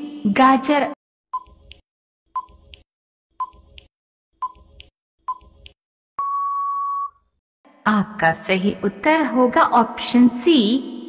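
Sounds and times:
long steady beep: 0:06.2 - 0:07.2.

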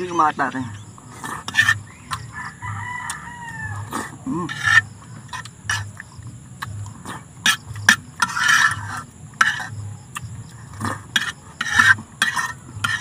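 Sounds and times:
cutlery scraping pan: 0:01.1 - 0:02.3, 0:03.9 - 0:06.0, 0:07.0 - 0:09.8, 0:10.8 - 0:13.0.

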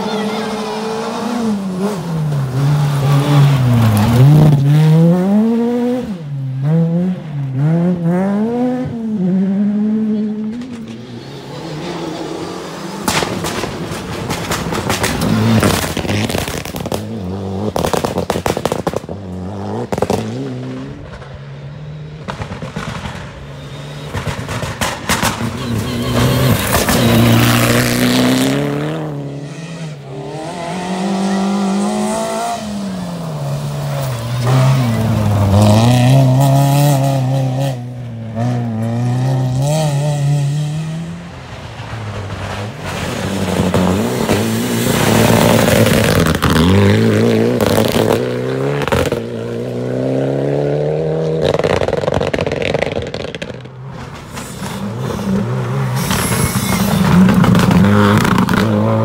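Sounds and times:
rally car engines revving: 0:00.0 - 0:59.0
sharp cracks and pops: 0:17.8 - 0:19.1, 0:51.4 - 0:53.7.

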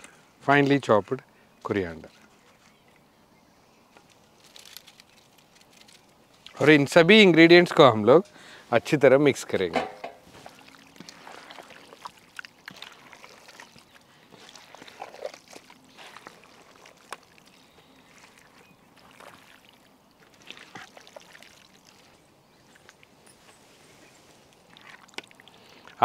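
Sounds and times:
wet squelches of hand mixing: 0:10.2 - 0:26.0.

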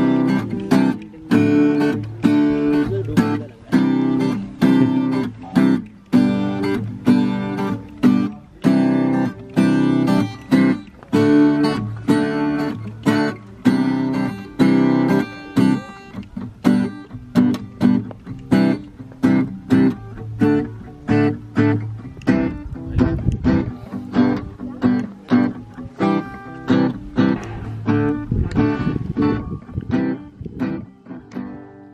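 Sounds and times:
acoustic guitar strumming: 0:00.0 - 0:31.9.

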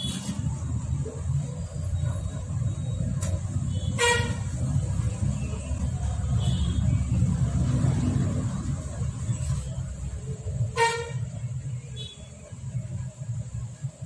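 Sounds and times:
vehicle horn toot: 0:00.0 - 0:00.4, 0:03.7 - 0:04.5, 0:06.4 - 0:07.0, 0:10.7 - 0:11.2
traffic rumble: 0:00.0 - 0:14.0.

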